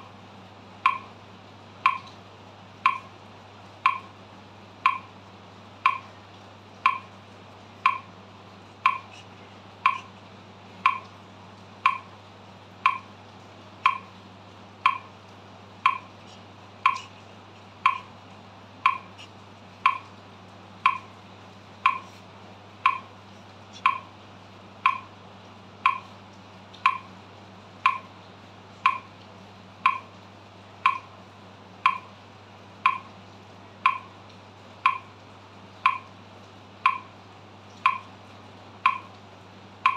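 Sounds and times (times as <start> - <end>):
metronome ticking: 0.8 - 1.2, 1.8 - 2.1, 2.8 - 3.2, 3.8 - 4.2, 4.8 - 5.2, 5.8 - 6.2, 6.8 - 7.2, 7.8 - 8.2, 8.8 - 9.2, 9.8 - 10.1, 10.8 - 11.1, 11.8 - 12.1, 12.8 - 13.1, 13.8 - 14.2, 14.8 - 15.2, 15.8 - 17.2, 17.8 - 18.2, 18.8 - 20.2, 20.8 - 21.2, 21.8 - 22.2, 22.8 - 24.1, 24.8 - 25.2, 25.8 - 26.1, 26.8 - 27.2, 27.8 - 28.1, 28.8 - 29.1, 29.8 - 30.1, 30.8 - 31.1, 31.8 - 32.1, 32.8 - 33.1, 33.8 - 34.2, 34.8 - 35.2, 35.8 - 36.2, 36.8 - 37.2, 37.8 - 38.2, 38.8 - 39.2.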